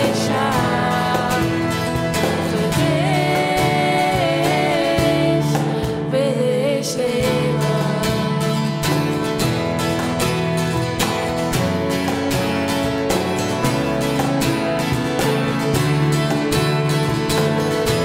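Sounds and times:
man singing: 0:00.0 - 0:05.6
acoustic guitars strumming: 0:00.0 - 0:18.0
cajon drum beat: 0:00.0 - 0:18.0.

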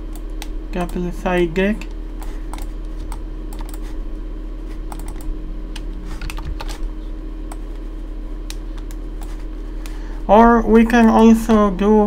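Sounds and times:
computer keys clicking: 0:01.8 - 0:03.9, 0:04.9 - 0:06.8.

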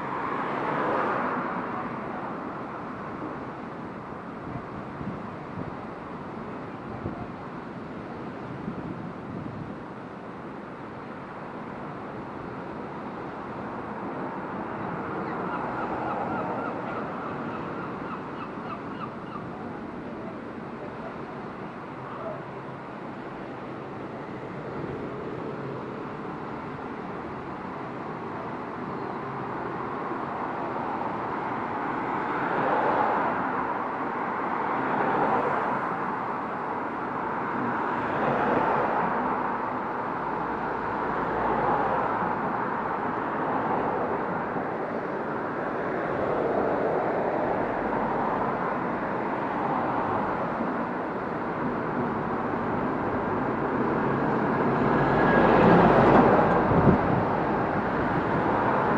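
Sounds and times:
cars passing by: 0:00.0 - 0:58.9.

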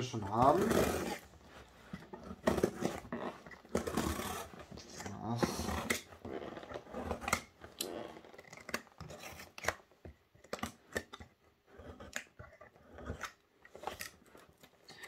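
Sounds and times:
box cutter cutting tape: 0:00.1 - 0:14.4
cardboard box being handled: 0:00.2 - 0:07.6.

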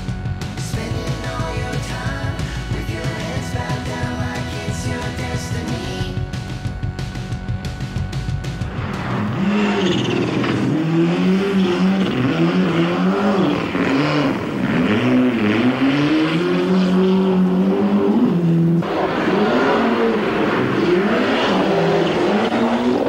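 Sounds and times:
rally car engine revving: 0:00.0 - 0:23.0.

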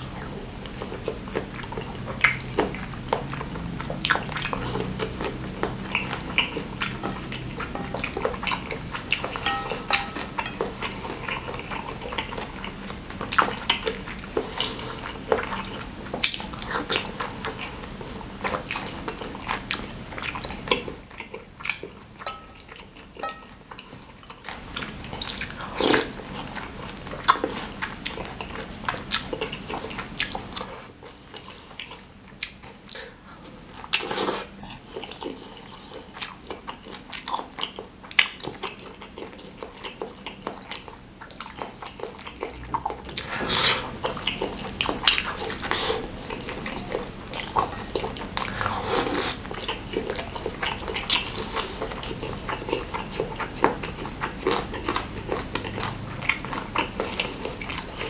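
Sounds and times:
wet chewing: 0:00.0 - 0:58.0
spoon and fork clacking on bowl: 0:06.8 - 0:08.5, 0:09.2 - 0:11.2, 0:22.2 - 0:23.6
slurping soup: 0:43.1 - 0:58.0.

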